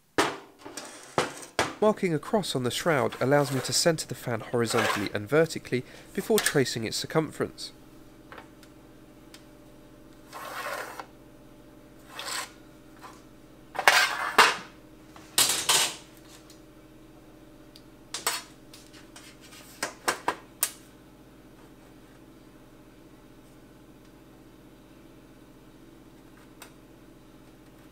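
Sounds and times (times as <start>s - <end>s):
metal scraping on workbench: 0.6s - 1.6s, 3.0s - 3.8s, 4.7s - 5.1s, 10.3s - 11.1s, 12.0s - 13.2s, 13.8s - 14.6s.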